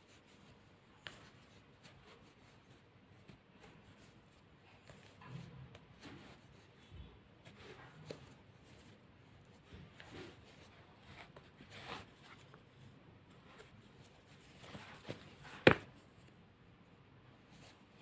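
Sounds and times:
yarn rustling with crochet hook: 0.0 - 16.4.

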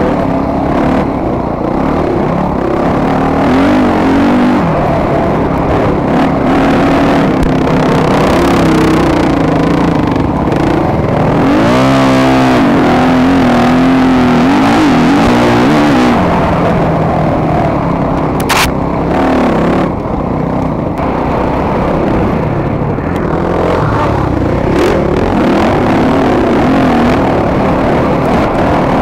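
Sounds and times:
dirt bike engine racing: 0.0 - 29.0
sharp click: 18.4 - 18.8.

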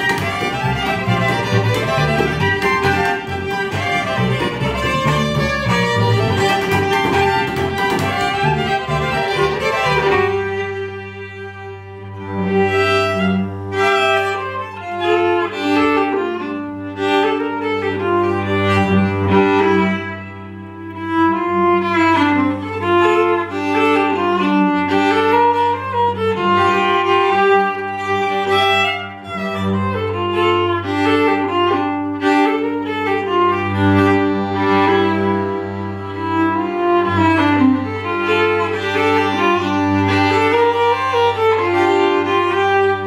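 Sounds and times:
upright bass: 0.0 - 11.4
fiddle playing quick melody: 0.0 - 43.0.

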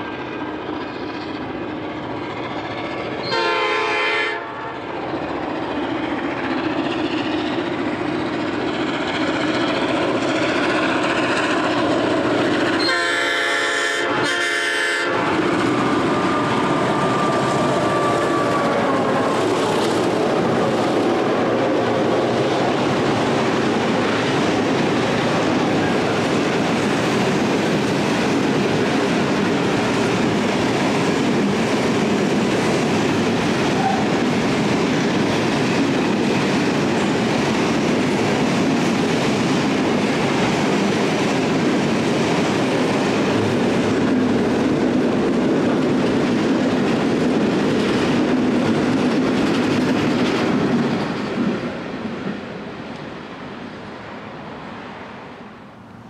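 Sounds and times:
train wagons rumbling and clattering: 0.0 - 56.0
locomotive horn: 3.2 - 4.8, 12.8 - 15.3, 16.3 - 19.3.

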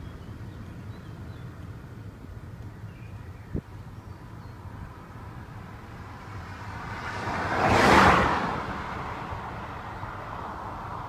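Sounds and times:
car road rumble: 0.0 - 11.0
vehicle passing whoosh: 5.6 - 11.0.

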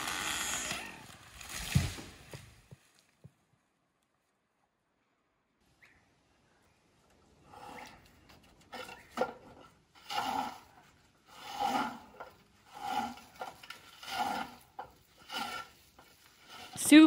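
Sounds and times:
hand saw cutting wood: 0.0 - 1.2, 7.5 - 17.0.

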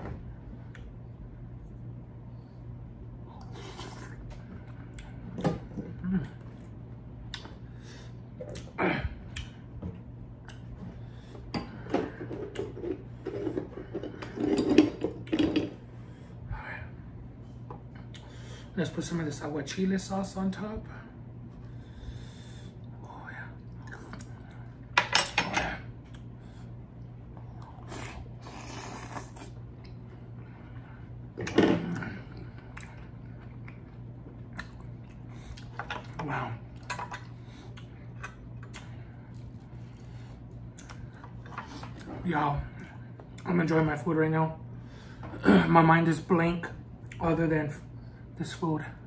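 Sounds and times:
steady low hum: 0.0 - 49.0
person slurping and chewing: 3.4 - 4.2, 27.6 - 29.6
person chewing: 27.4 - 30.0, 32.3 - 35.8, 36.7 - 42.1.

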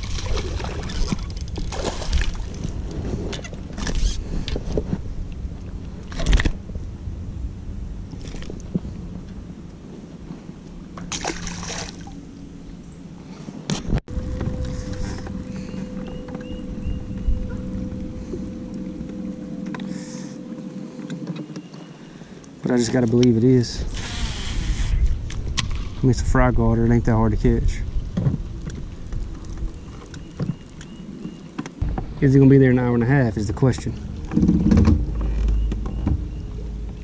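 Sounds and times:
water splashing: 0.0 - 3.0, 11.0 - 12.2.

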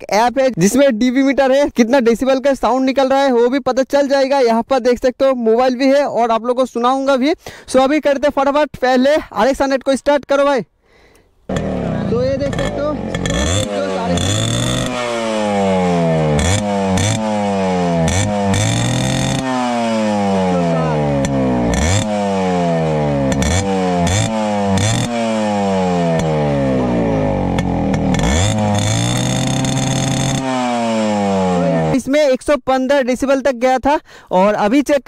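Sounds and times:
motorcycle engine revving: 11.5 - 32.1.

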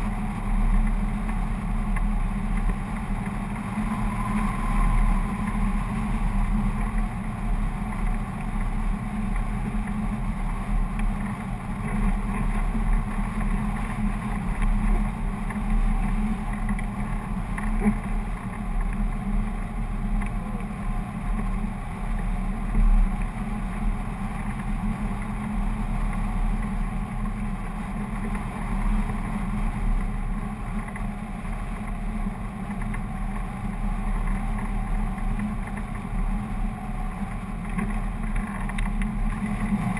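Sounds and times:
wind on microphone: 0.0 - 19.6.

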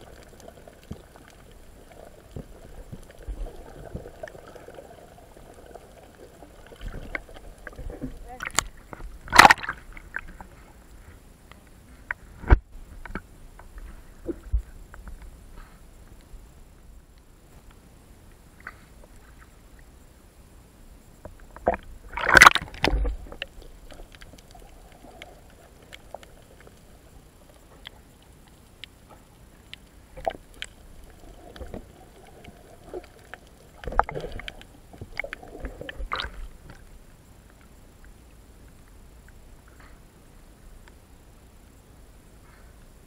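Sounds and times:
muffled water sloshing: 0.0 - 11.2, 21.6 - 28.0, 30.0 - 37.1
crackle: 0.0 - 43.0.

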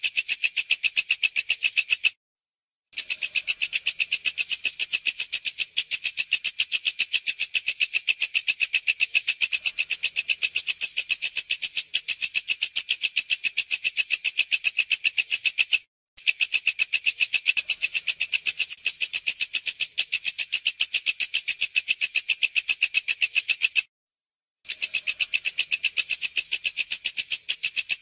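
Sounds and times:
bush cricket chirping: 8.9 - 12.7, 16.8 - 20.5, 24.7 - 28.0.

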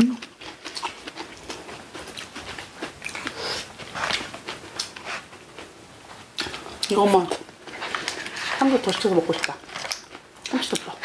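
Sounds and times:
chewing: 0.1 - 11.0
crunching: 7.3 - 11.0.

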